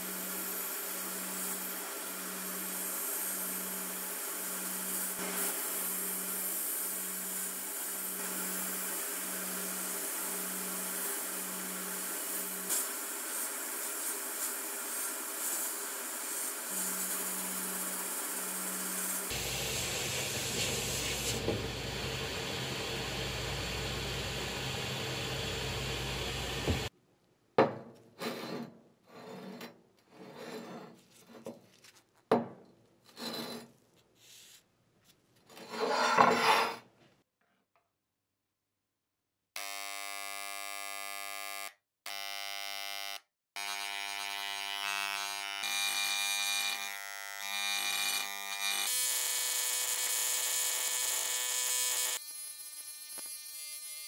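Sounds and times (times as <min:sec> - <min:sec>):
sandblasting gun hissing: 0:00.0 - 0:26.9
electric engraving pen buzzing: 0:16.3 - 0:26.9, 0:39.6 - 0:54.0
scraping on metal pan: 0:35.6 - 0:36.8.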